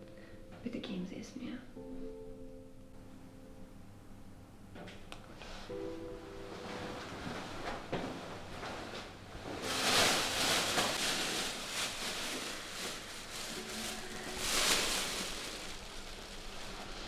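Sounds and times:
plastic bag crinkling: 9.6 - 17.0.

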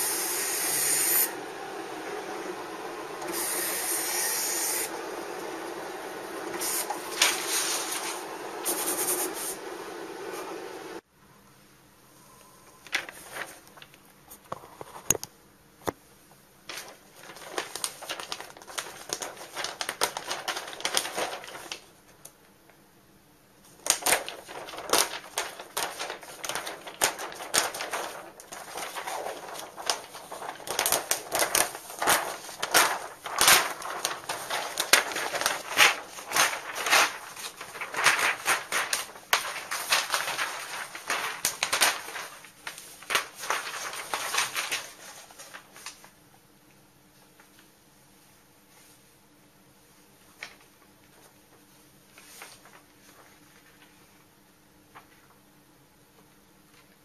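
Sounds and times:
paper crackling and rustling: 1.1 - 11.0, 12.8 - 15.2, 16.7 - 22.3, 23.6 - 46.2, 50.3 - 54.1.

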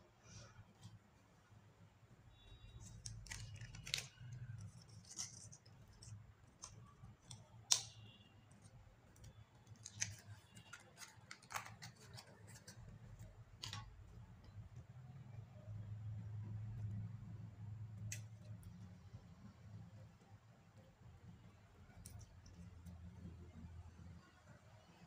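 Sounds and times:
sticky clicks of slime: 2.8 - 12.3.

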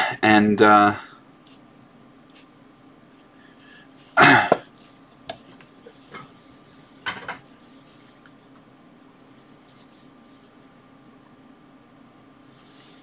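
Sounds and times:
man coughing: 4.2 - 4.7.

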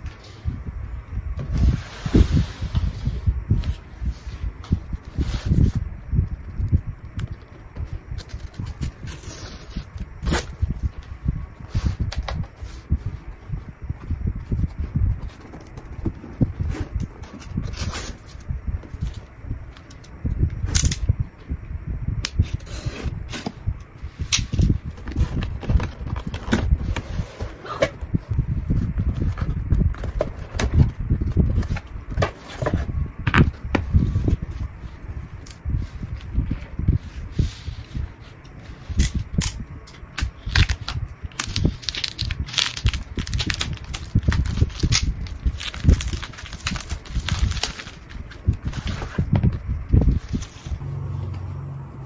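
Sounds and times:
plastic shrink-wrap crackling: 40.3 - 49.0.

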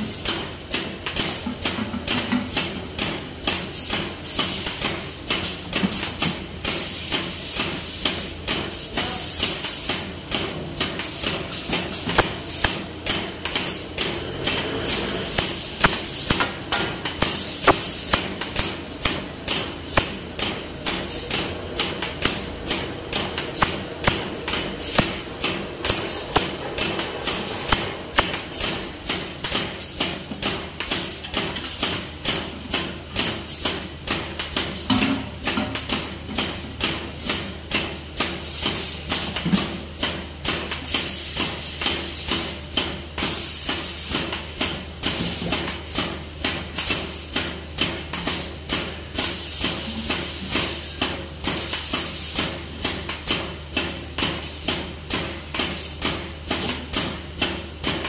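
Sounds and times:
machine hum: 11.2 - 29.4
machine regular knocking: 15.4 - 29.7.

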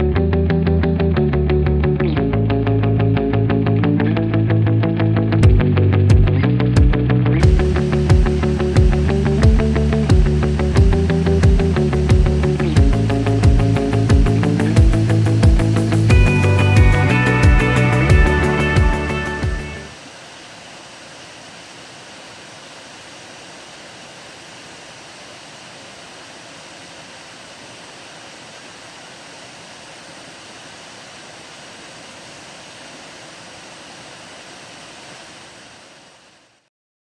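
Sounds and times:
water rushing over weir: 12.2 - 36.7.

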